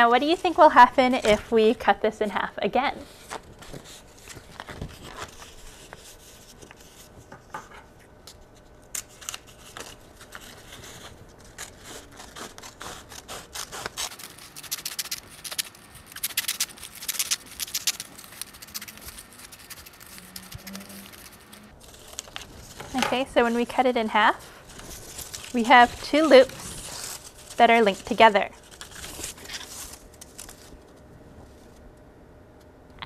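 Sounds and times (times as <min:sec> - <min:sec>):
paper rustling: 0:03.0 - 0:07.4, 0:08.3 - 0:23.7, 0:24.4 - 0:30.9
scissors snipping paper: 0:08.9 - 0:23.2.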